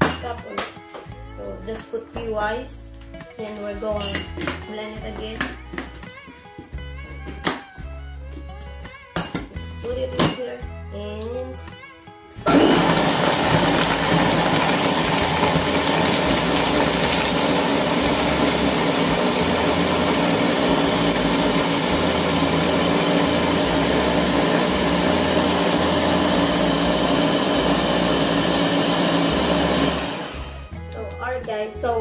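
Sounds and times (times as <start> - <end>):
blender crushing ice: 12.4 - 30.7.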